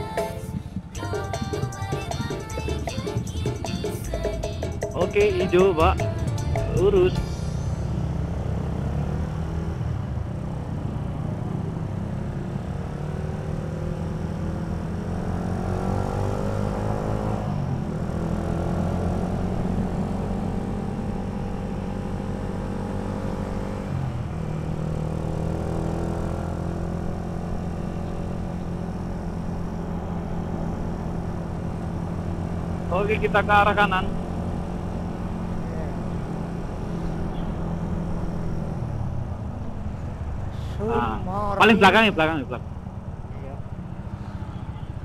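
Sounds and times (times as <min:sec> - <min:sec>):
motorcycle engine accelerating: 0:06.6 - 0:44.1.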